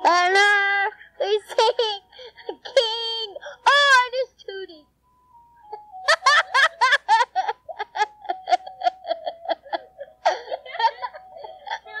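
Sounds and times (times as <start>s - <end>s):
child giggling: 1.4s - 3.3s, 5.7s - 12.0s.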